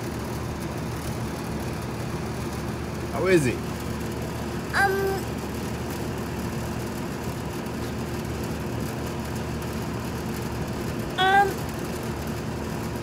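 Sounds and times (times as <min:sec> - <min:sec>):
steady mechanical drone: 0:00.0 - 0:13.0
brief high-pitched voice: 0:04.8 - 0:05.2, 0:11.2 - 0:11.6.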